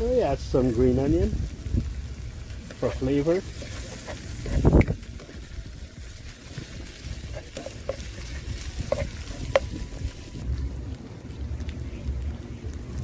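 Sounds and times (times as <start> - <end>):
vegetables sizzling in oil: 0.0 - 10.5
spoon scraping pan: 2.7 - 5.5, 6.5 - 10.4.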